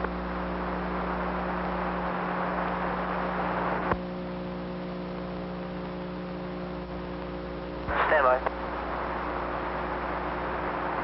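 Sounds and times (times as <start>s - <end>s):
radio channel hiss: 0.0s - 11.0s
steady electrical hum: 0.0s - 11.0s
radio click: 7.2s - 8.6s.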